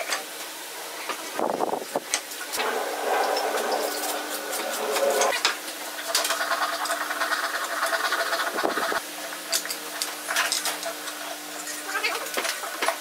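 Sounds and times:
steady background hum: 0.0 - 13.0
wood rubbing and sliding: 2.4 - 5.4.

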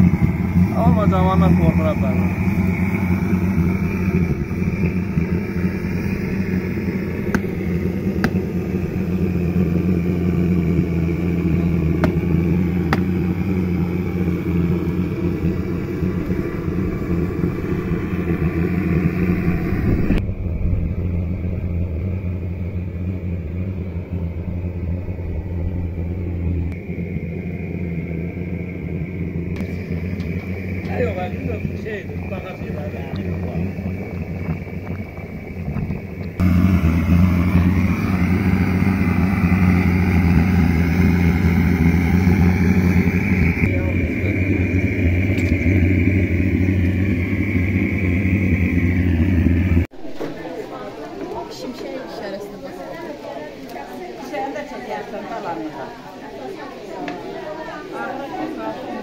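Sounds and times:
low mechanical hum: 0.0 - 53.8.

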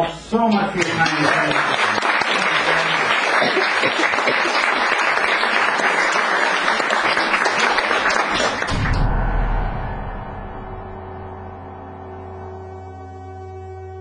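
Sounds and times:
audience applauding: 0.5 - 9.0
low steady music tone: 8.7 - 14.0.

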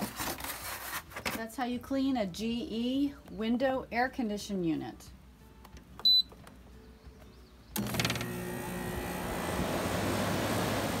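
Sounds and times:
control panel beep: 6.0 - 6.3
air conditioner fan running: 7.8 - 11.0.

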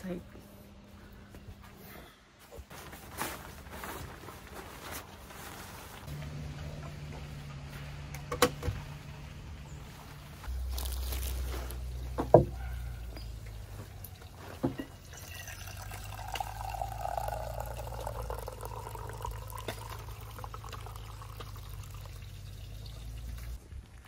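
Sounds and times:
liquid running: 14.1 - 23.6.

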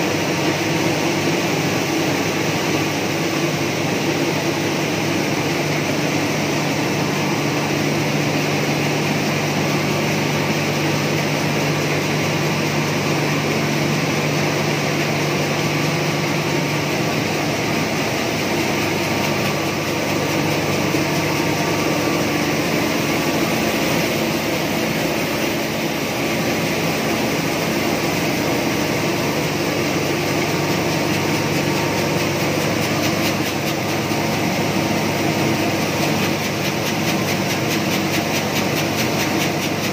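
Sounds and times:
rice mill machinery running: 0.0 - 39.9
rice pouring through chutes: 0.0 - 39.9.

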